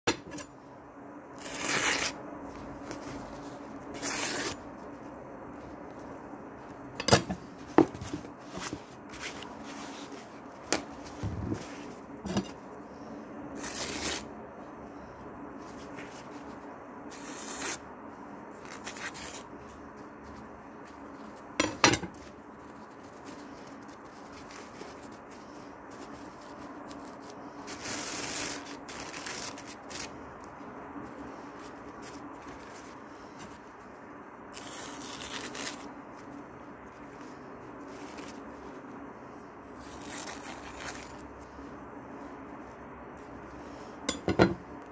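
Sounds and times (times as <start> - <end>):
faint steady hum: 0.1 - 44.9
knife slicing paper: 1.4 - 2.2, 2.8 - 4.6, 13.6 - 14.3, 17.1 - 17.8, 26.0 - 30.1, 34.5 - 35.9, 39.8 - 41.2
paper rustling: 7.4 - 13.0, 18.6 - 39.0.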